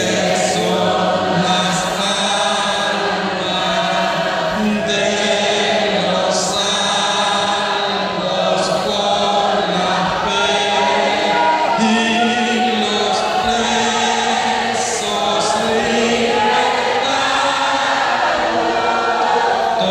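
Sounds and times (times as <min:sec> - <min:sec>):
crowd singing together: 0:00.0 - 0:19.9.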